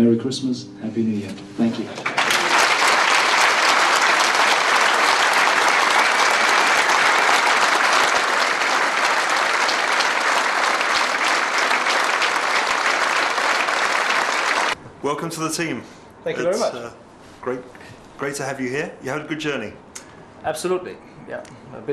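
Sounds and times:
crowd applauding: 0:01.9 - 0:14.8.

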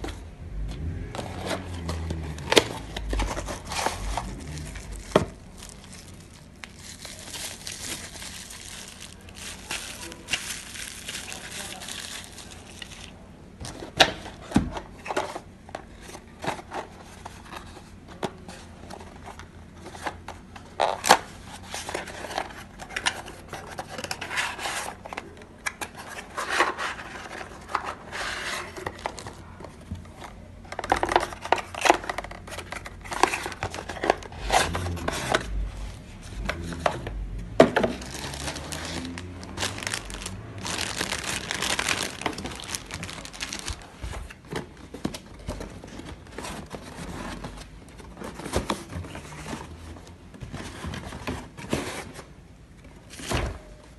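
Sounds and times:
plastic packaging crinkling: 0:01.8 - 0:13.2, 0:37.8 - 0:48.9
cardboard being handled: 0:37.7 - 0:52.2.

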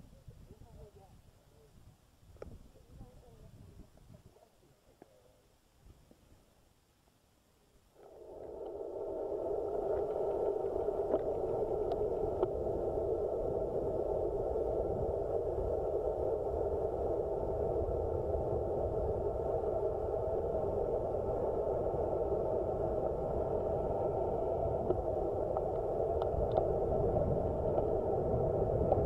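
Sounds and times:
faint clicks: 0:08.0 - 0:12.6, 0:24.8 - 0:26.8, 0:27.7 - 0:28.0.

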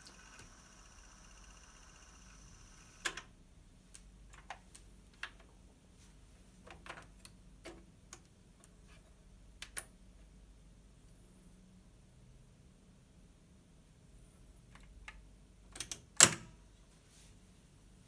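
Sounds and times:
cassette tape transport humming: 0:00.0 - 0:03.3.

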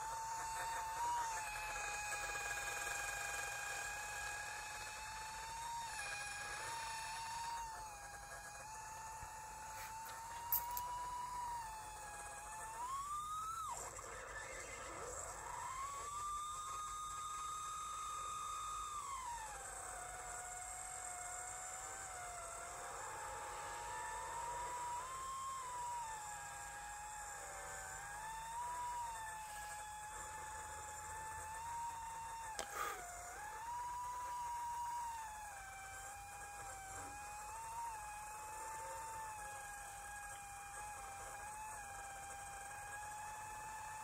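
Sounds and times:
drone motors whining: 0:00.0 - 0:44.0.

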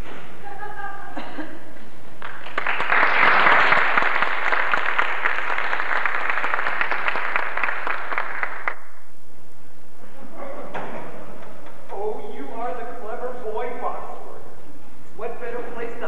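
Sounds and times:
audience applauding: 0:02.2 - 0:08.9.

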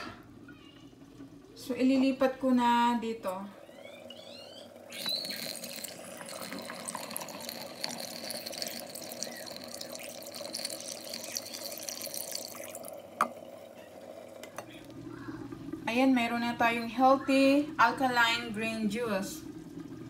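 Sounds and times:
juice trickling into a jar: 0:03.6 - 0:15.2.

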